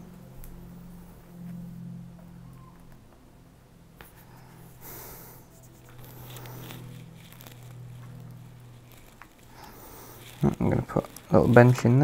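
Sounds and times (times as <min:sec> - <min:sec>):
steady low hum: 0:00.0 - 0:12.0
faint rustling: 0:04.0 - 0:12.0.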